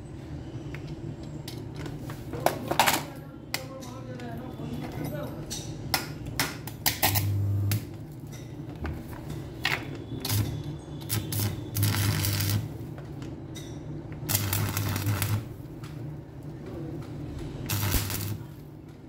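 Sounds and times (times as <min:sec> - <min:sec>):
welding arc crackling: 0:06.8 - 0:08.1, 0:10.2 - 0:12.9, 0:14.3 - 0:16.0, 0:17.6 - 0:18.7
welder hum: 0:06.9 - 0:08.0, 0:10.2 - 0:12.9, 0:14.3 - 0:15.7, 0:17.6 - 0:18.7.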